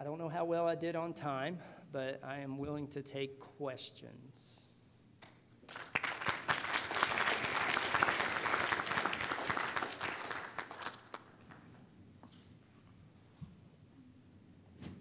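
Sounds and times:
audience applauding: 0:05.7 - 0:11.6.

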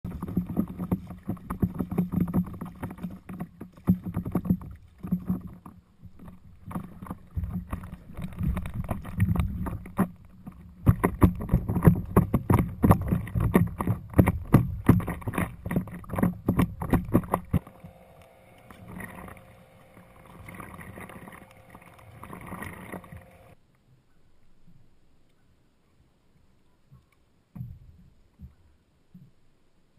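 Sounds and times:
paddle strokes: 0:00.0 - 0:23.6
water lapping: 0:00.0 - 0:23.6
water splashing against paddleboard: 0:00.0 - 0:23.6.

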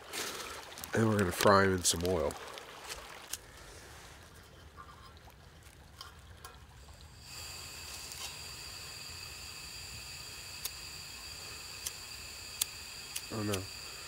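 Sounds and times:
creek trickling: 0:00.0 - 0:14.0
faint hiss: 0:06.7 - 0:14.0
thin high-pitched whine: 0:06.8 - 0:14.0.

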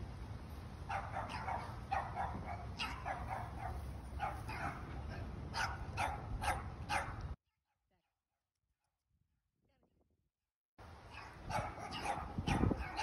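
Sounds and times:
dog barking: 0:00.9 - 0:07.2, 0:11.1 - 0:13.0.

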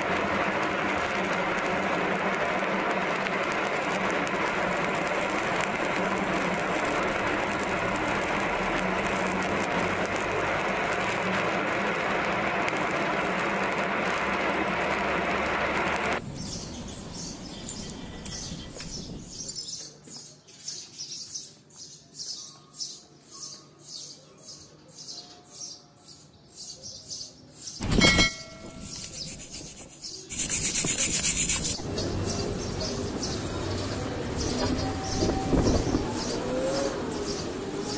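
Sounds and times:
welding arc crackling: 0:00.0 - 0:16.5, 0:27.8 - 0:37.9
ringing metal clang: 0:27.8 - 0:28.9
slag scraping strokes: 0:27.8 - 0:31.8.

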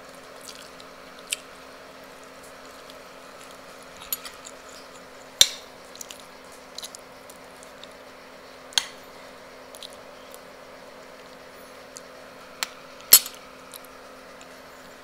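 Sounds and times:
faint steady hum: 0:00.0 - 0:15.0
chewing and lip smacks: 0:00.1 - 0:01.6, 0:02.2 - 0:08.0, 0:09.7 - 0:10.5.

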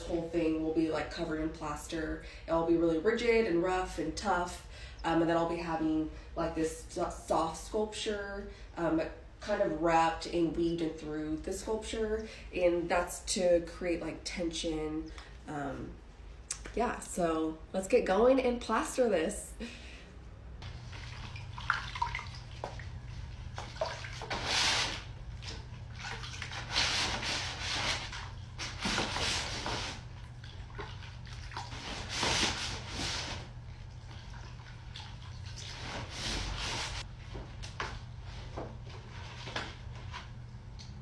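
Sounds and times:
wet plaster sloshing in bucket: 0:20.6 - 0:37.1.

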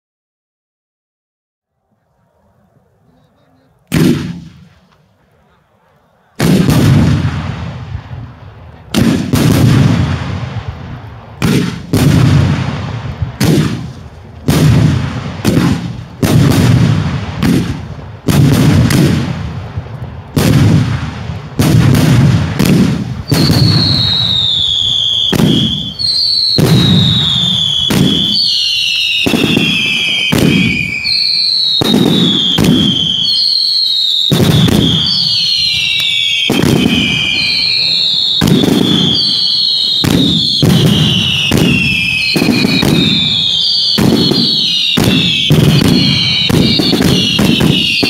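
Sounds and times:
fireworks bangs with rumbling echo: 0:03.9 - 0:05.1, 0:06.4 - 0:48.0
high falling whistle: 0:23.3 - 0:48.0.

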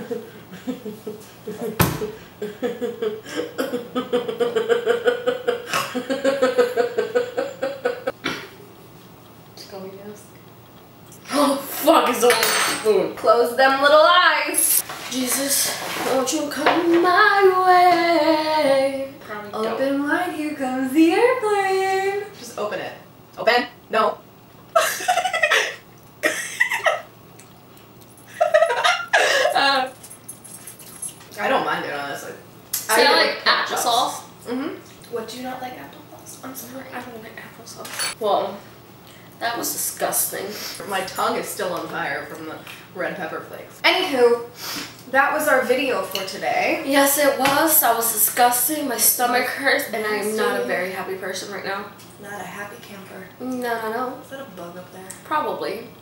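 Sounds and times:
woman laughing: 0:00.0 - 0:08.2, 0:24.8 - 0:27.1, 0:28.3 - 0:30.0.

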